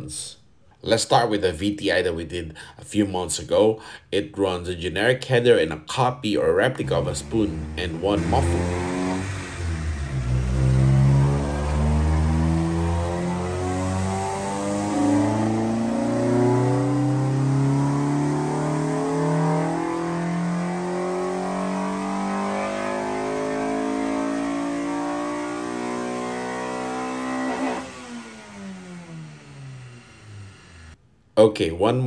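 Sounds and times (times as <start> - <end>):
car engine revving at full throttle: 6.8 - 31.0.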